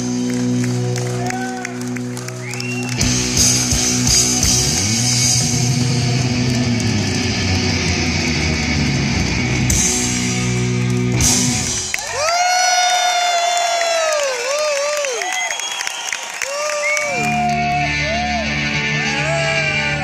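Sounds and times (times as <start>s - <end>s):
live rock band playing: 0.0s - 12.1s, 17.0s - 20.0s
crowd cheering: 0.0s - 20.0s
long drawn-out shout: 1.0s - 2.5s, 12.0s - 20.0s.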